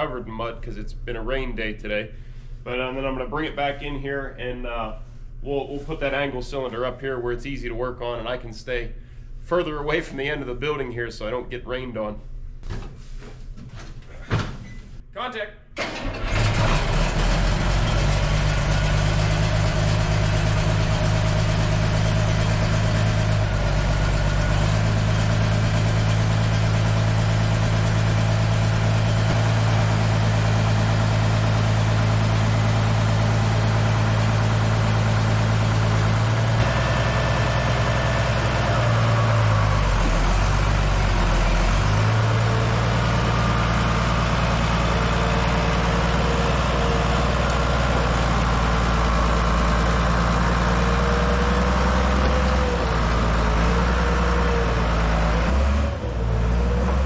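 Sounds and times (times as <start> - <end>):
bulldozer diesel engine idling: 15.8 - 57.0.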